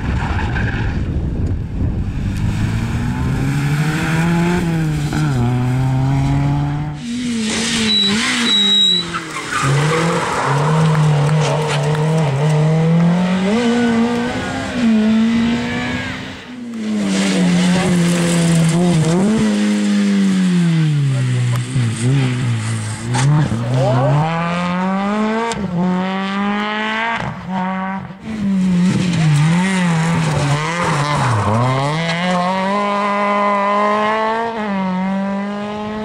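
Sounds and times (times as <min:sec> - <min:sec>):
rally car engines revving: 0:00.0 - 0:36.0
tyres on gravel: 0:07.0 - 0:13.3, 0:16.7 - 0:24.2.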